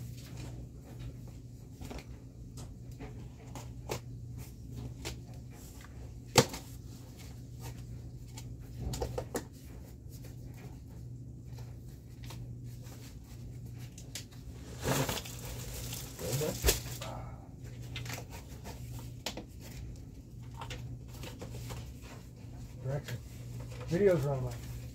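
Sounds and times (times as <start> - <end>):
cardboard rustling: 11.8 - 17.1.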